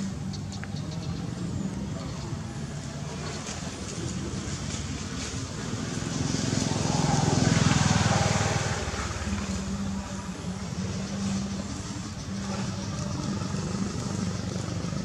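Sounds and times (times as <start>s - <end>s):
low engine hum: 0.0s - 15.0s
motor vehicle passing: 0.0s - 15.0s.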